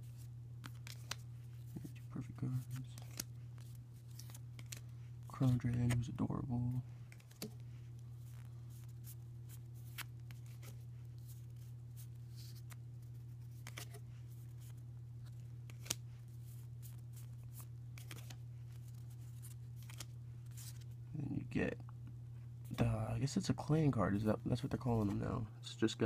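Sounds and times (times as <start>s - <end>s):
trading cards flipping: 0.0s - 6.1s, 7.0s - 21.0s
steady low hum: 0.0s - 26.0s.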